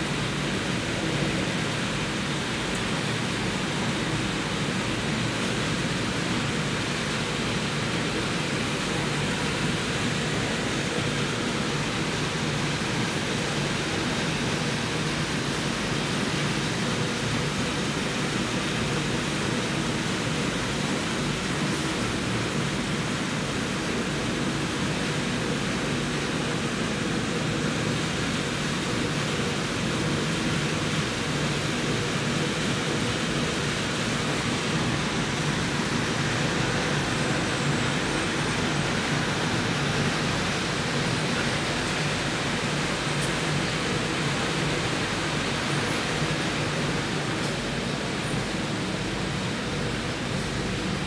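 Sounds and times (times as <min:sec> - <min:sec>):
machinery noise: 0:32.6 - 0:49.2.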